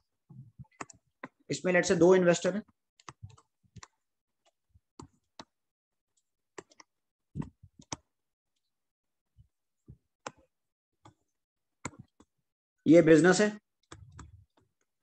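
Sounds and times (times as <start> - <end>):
faint clicks and taps: 0.6 - 1.5, 2.6 - 8.7, 9.4 - 12.4, 13.8 - 15.0.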